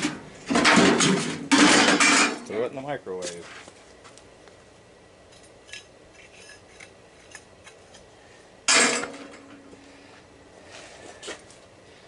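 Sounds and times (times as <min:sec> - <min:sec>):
scrap metal clanging: 0:00.0 - 0:02.5, 0:08.7 - 0:09.8.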